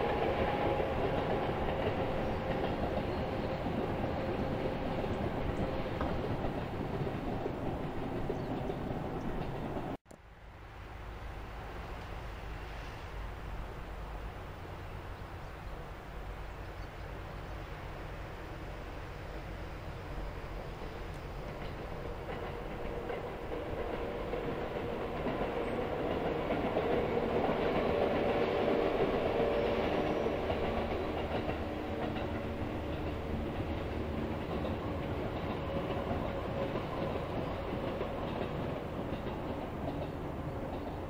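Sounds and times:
electric train passing: 0.0s - 41.0s
wheels clattering over rail joints: 30.0s - 41.0s.

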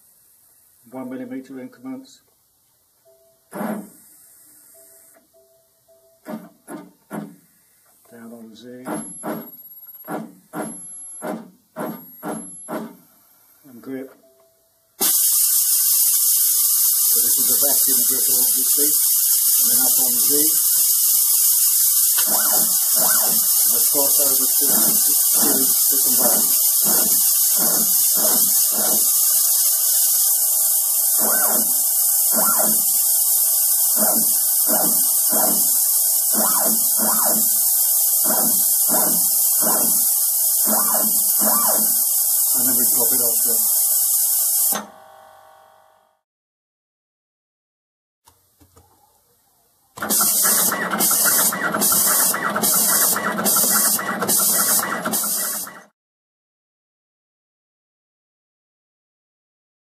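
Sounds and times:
constant loud hiss: 15.0s - 44.7s
stepper motors whining: 16.0s - 43.5s.

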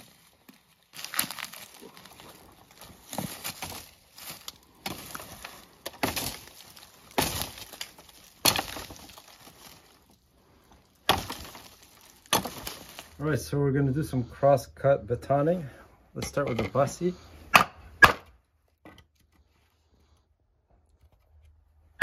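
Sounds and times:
knife chopping through branches: 3.0s - 9.8s, 11.0s - 13.2s, 17.5s - 18.3s.

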